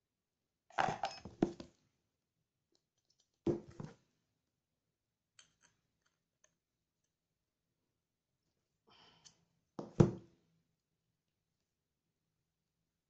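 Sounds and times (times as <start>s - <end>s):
metal parts clinking on table: 0.8s - 1.3s.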